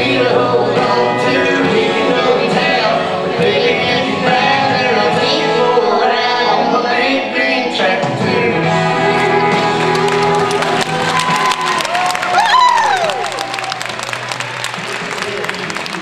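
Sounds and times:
boy singing into a microphone: 0.0s - 10.4s
country backing track: 0.0s - 12.5s.

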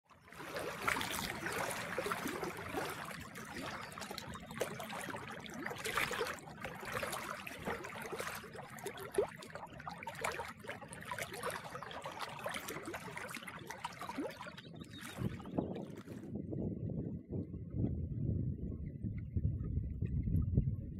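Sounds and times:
lake waves lapping and splashing: 0.0s - 16.6s.

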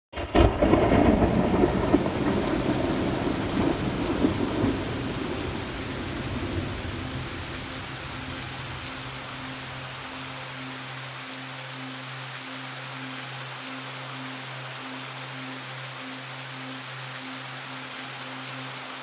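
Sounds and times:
thunder cracking and rolling: 0.1s - 8.1s
heavy rain hissing: 0.2s - 19.0s.

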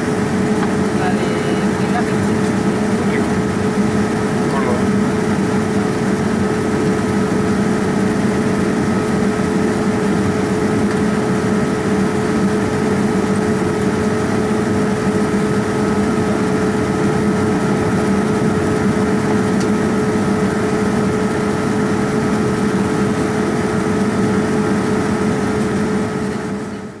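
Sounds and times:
constant low hum: 0.0s - 9.8s
jet engine rush and airflow: 0.0s - 21.6s.

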